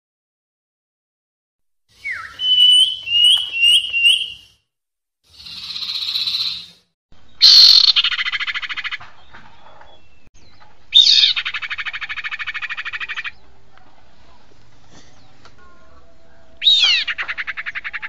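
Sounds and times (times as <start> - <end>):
recorded bird calls with trill: 2.0 - 4.6, 5.3 - 9.0.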